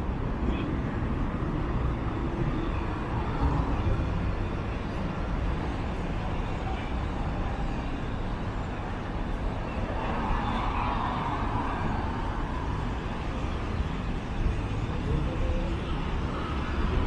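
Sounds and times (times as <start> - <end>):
low city rumble: 0.0 - 17.0
faint voices: 5.6 - 17.0.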